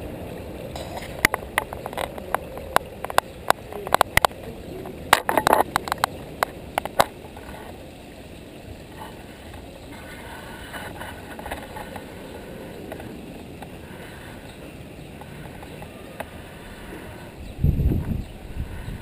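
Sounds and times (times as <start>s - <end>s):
water splashing over rocks: 0.0s - 16.4s
sharp clicks and knocks: 0.7s - 7.7s.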